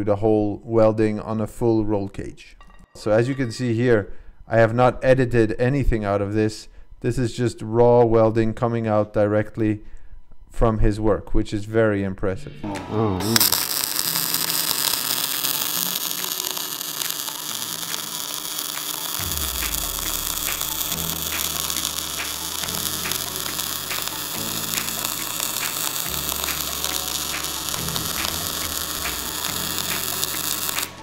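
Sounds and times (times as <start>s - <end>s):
welding arc hissing and crackling: 13.2s - 31.0s
low hum: 17.3s - 30.2s.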